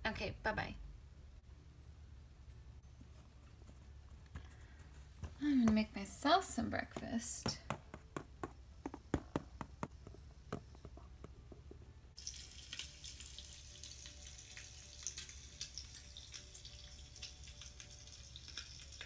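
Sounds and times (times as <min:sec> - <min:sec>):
bacon sizzling and popping: 0:12.2 - 0:19.0.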